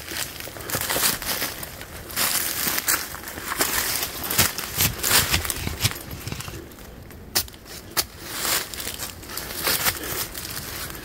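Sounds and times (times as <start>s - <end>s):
footsteps crunching through dry leaves: 0.0s - 6.8s, 7.4s - 11.0s.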